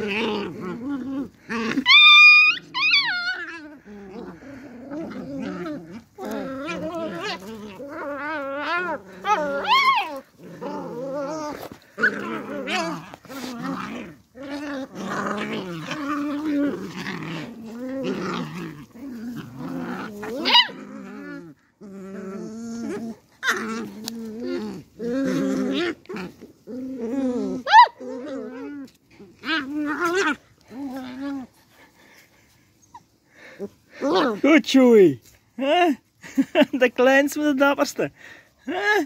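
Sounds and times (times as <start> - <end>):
puppies growling: 0.0 - 34.6
puppy high yelps: 1.8 - 3.6, 9.2 - 10.2, 20.4 - 20.8, 27.6 - 28.0.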